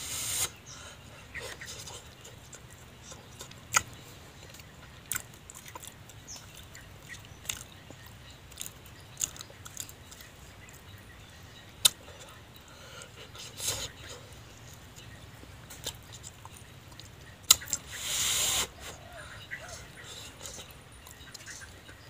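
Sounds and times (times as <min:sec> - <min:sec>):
chewing: 0:01.3 - 0:11.0, 0:11.7 - 0:18.0, 0:18.6 - 0:22.0
mouth smacking clicks: 0:01.4 - 0:10.3, 0:11.8 - 0:12.4, 0:14.8 - 0:19.0.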